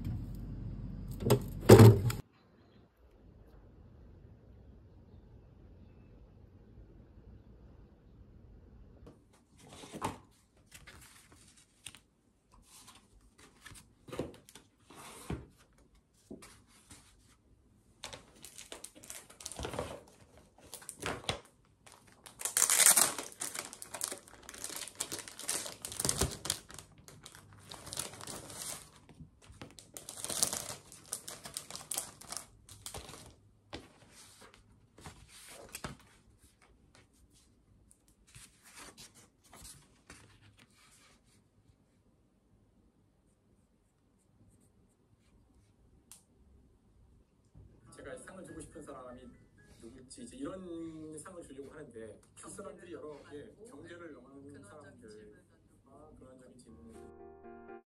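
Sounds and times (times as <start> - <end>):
paper rustling: 9.5 - 17.4, 18.0 - 41.4
plastic wrapper crinkling: 18.0 - 33.4.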